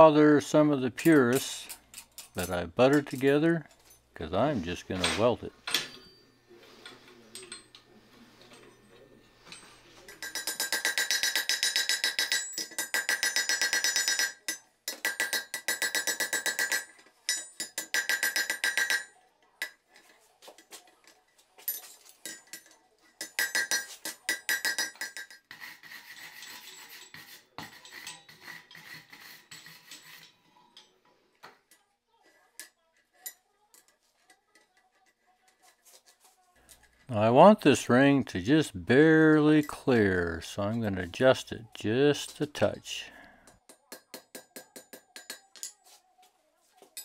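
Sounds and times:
anvil ringing: 5.1s - 6.4s, 10.1s - 19.2s
hammer striking metal on anvil: 10.1s - 19.8s, 23.2s - 25.4s, 43.5s - 45.8s.

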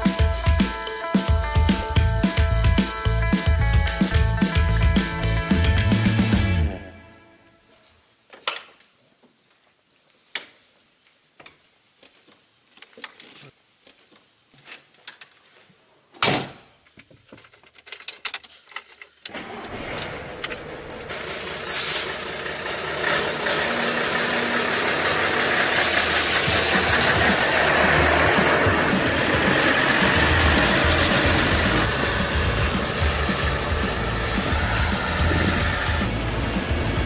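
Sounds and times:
truck diesel engine starting and idling: 19.3s - 37.0s
short hiss: 21.7s - 22.2s.

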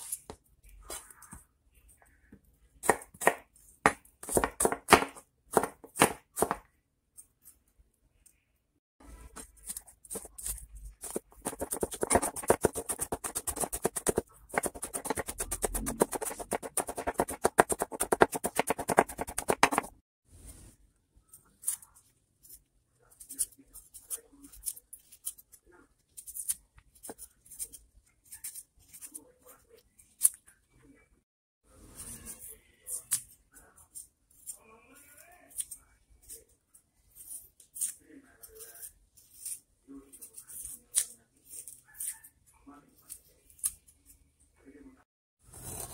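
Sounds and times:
knife chopping on plastic board: 2.8s - 6.7s, 9.4s - 20.0s
knife scraping ginger skin: 9.3s - 19.9s, 21.2s - 30.5s, 32.0s - 44.2s, 45.5s - 45.9s.

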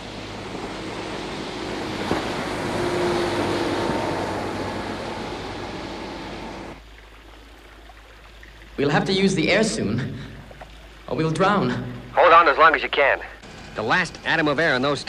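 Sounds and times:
ship engine noise: 0.0s - 6.9s, 11.4s - 15.0s
rushing wash of water: 0.0s - 13.0s.

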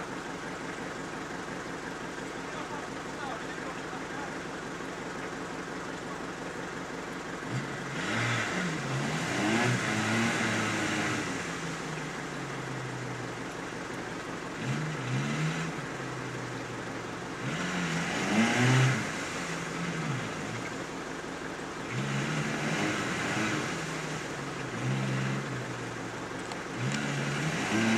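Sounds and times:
engine revving hard: 7.4s - 13.1s, 14.5s - 16.6s, 17.3s - 20.9s, 21.8s - 26.0s, 26.7s - 27.9s
mud and water spray hiss: 17.5s - 20.8s, 21.9s - 25.6s.

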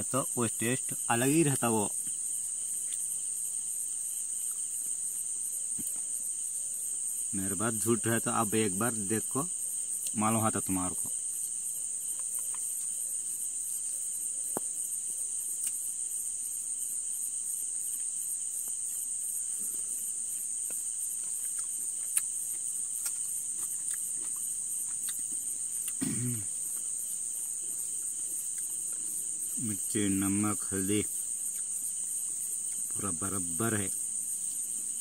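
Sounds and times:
crickets trilling: 0.0s - 35.0s.

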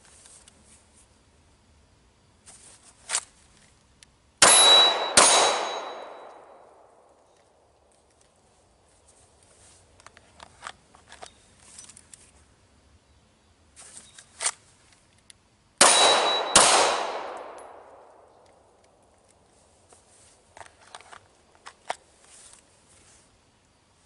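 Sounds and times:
pistol shots with echo: 4.4s - 7.1s, 15.8s - 18.4s.

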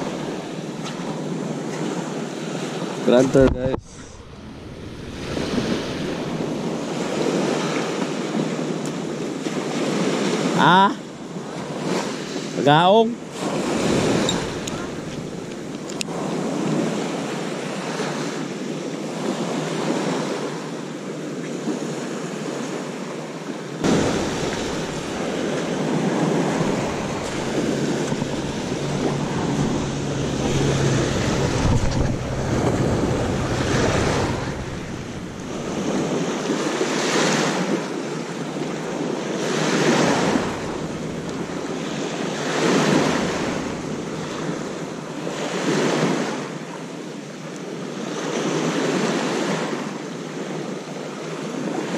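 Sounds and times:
wind buffeting microphone: 0.0s - 10.3s, 13.3s - 17.2s, 23.8s - 46.5s
waves washing onto pebbly shore: 0.0s - 51.9s.

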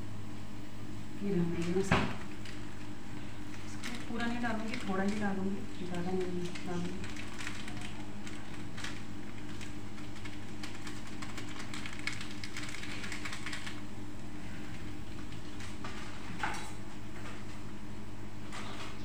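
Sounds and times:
steady low hum: 0.0s - 19.0s
plastic foil sachet crinkling: 3.5s - 13.8s.

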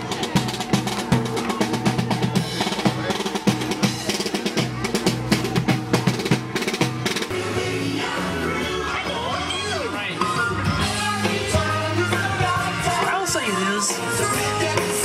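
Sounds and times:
snare and bass drums beating: 0.0s - 7.4s.

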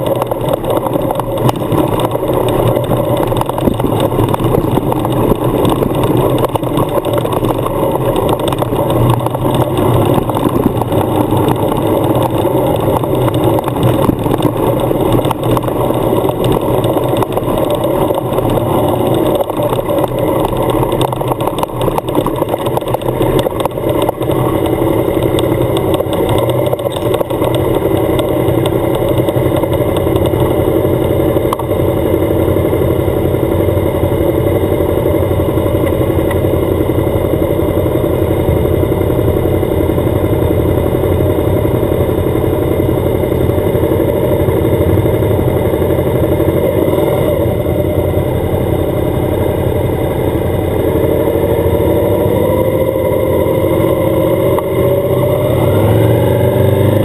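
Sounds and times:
motorcycle engine running: 0.0s - 57.0s
road and wind noise: 0.0s - 57.0s.

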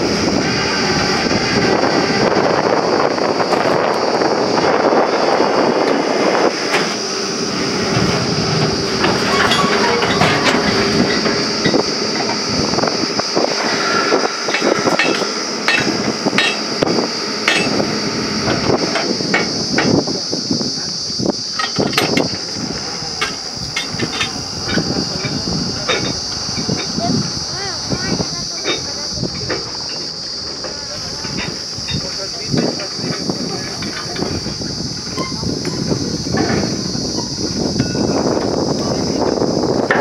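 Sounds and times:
drilling rig running with high whine: 0.0s - 40.0s
metallic knocks and clanks: 7.9s - 12.4s, 14.5s - 16.7s.

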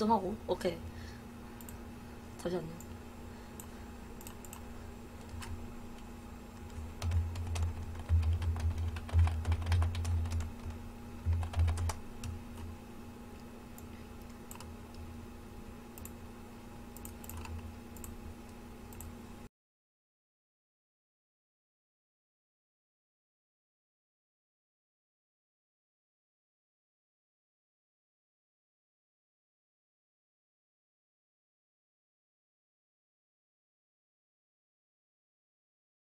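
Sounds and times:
faint steady hum: 0.0s - 19.5s
computer keyboard typing: 3.6s - 5.6s, 6.6s - 12.7s, 13.8s - 14.8s, 17.0s - 18.2s.

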